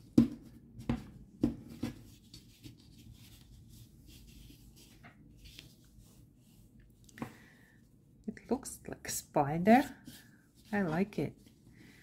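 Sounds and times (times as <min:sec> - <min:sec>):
faint rubbing of yarn: 0:09.6 - 0:12.0.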